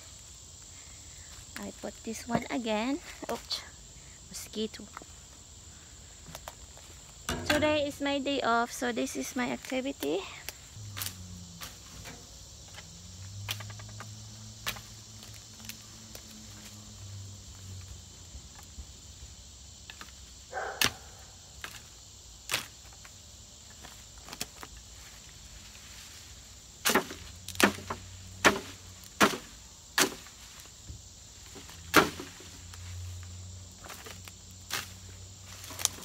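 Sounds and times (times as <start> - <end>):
insects trilling: 0.0 - 36.0
blade chopping through weed stems: 10.9 - 16.8, 26.8 - 30.4, 31.5 - 32.8.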